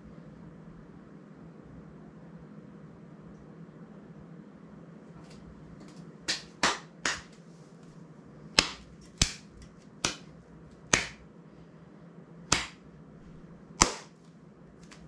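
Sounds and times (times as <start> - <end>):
sharp clicks with room echo: 6.3 - 7.4, 8.6 - 10.3, 10.9 - 11.2, 12.5 - 12.8, 13.8 - 14.2.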